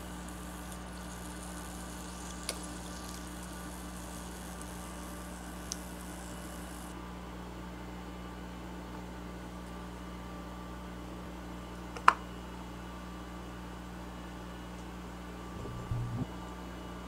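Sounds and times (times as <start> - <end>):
frying oil sizzling: 0.0 - 6.9
low hum with faint hiss: 0.0 - 7.1, 7.8 - 17.0.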